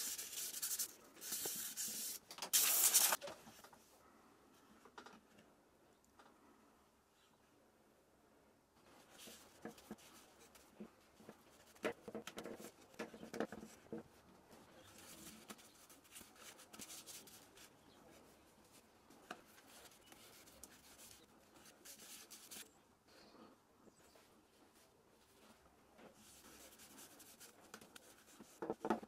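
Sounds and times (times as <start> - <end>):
hand rubbing wooden bowl: 0.0 - 2.1.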